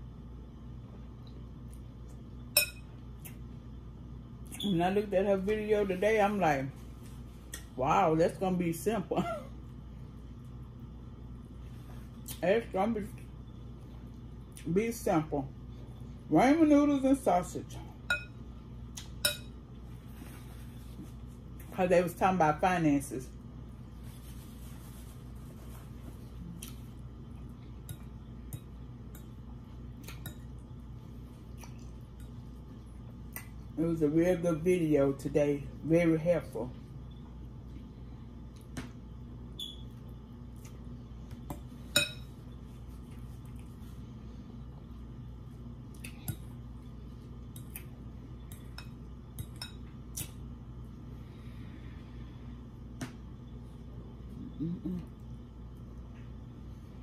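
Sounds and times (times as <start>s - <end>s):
fork clinking against glass bowl: 2.6s - 2.9s, 18.1s - 18.4s, 19.2s - 19.6s, 41.9s - 42.3s
chewing mouth noises: 31.5s - 32.0s.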